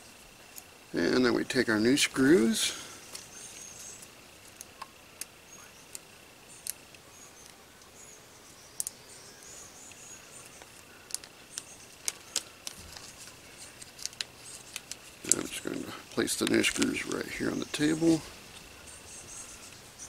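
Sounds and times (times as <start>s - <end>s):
plastic bag crinkling: 10.5s - 18.6s.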